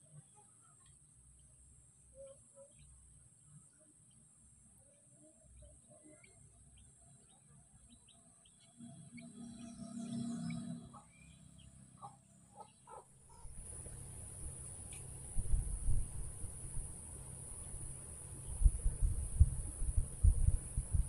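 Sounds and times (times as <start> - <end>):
small birds chirping: 0.1 - 13.5.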